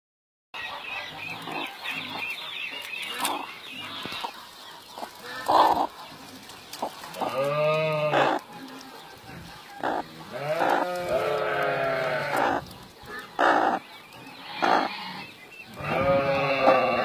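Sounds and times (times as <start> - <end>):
hen chirping: 0.6 - 17.0
hen clucking: 0.6 - 17.0
hen long drawn-out call: 7.1 - 8.5, 9.7 - 17.0.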